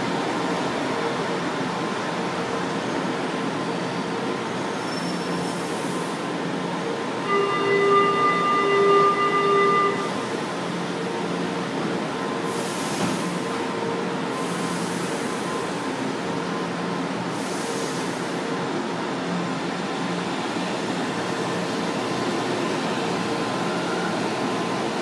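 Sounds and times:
train running hum: 0:00.0 - 0:25.0
train door warning tone: 0:07.2 - 0:11.3, 0:23.3 - 0:25.0
hiss rushes: 0:12.5 - 0:13.5.

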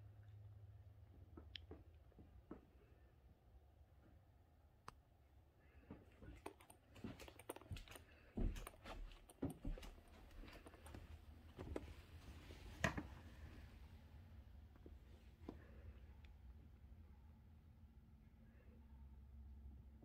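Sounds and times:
footsteps on carpet: 0:07.0 - 0:12.7.

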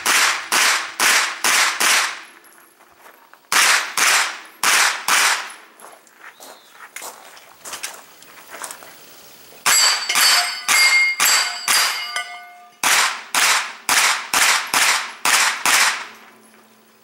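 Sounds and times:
carbine gunshots: 0:00.0 - 0:02.3, 0:03.5 - 0:05.6, 0:12.8 - 0:16.2
steel targets ringing: 0:09.6 - 0:12.9.

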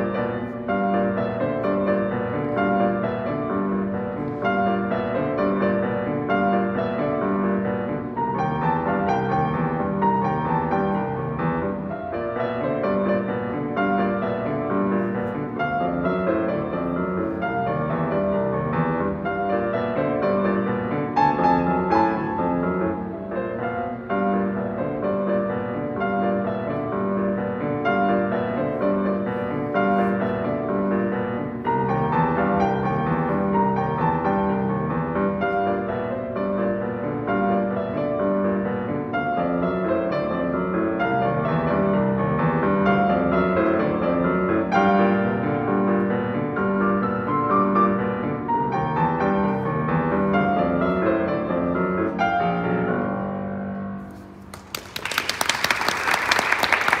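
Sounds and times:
boogie-woogie piano: 0:00.0 - 0:54.4
audience applause: 0:54.5 - 0:57.0.

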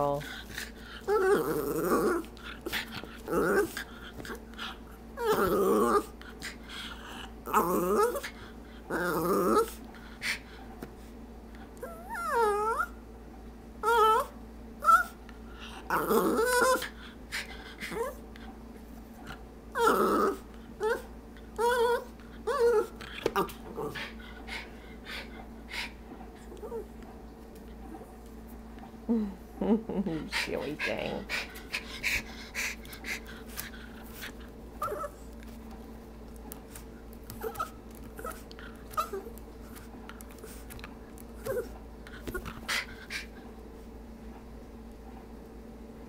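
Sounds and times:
dog wavering vocal sounds: 0:00.0 - 0:10.5, 0:11.8 - 0:13.0, 0:13.8 - 0:18.4, 0:19.2 - 0:27.0, 0:29.1 - 0:35.5, 0:37.2 - 0:43.4.

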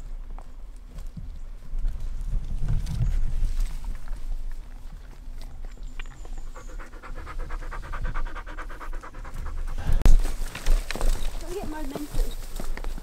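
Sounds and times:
dog panting: 0:06.2 - 0:10.0.

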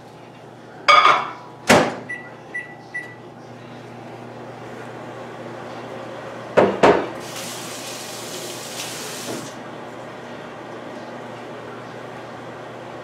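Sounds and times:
faucet running water: 0:07.2 - 0:09.6.

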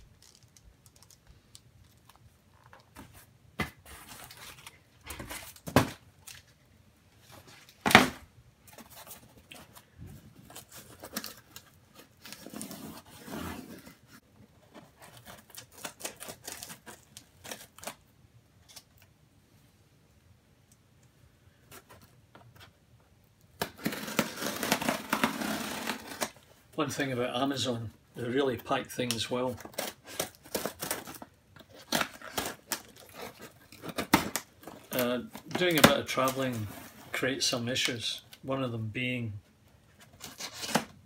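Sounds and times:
packaging rustling and scraping: 0:00.0 - 0:06.6, 0:08.6 - 0:18.0, 0:23.6 - 0:27.0, 0:27.6 - 0:38.2, 0:39.8 - 0:41.0.

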